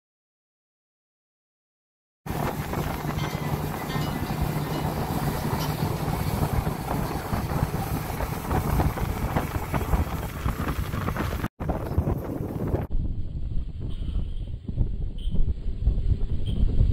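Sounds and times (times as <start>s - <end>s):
boat motor droning: 2.3s - 11.2s
wind buffeting microphone: 2.3s - 16.9s.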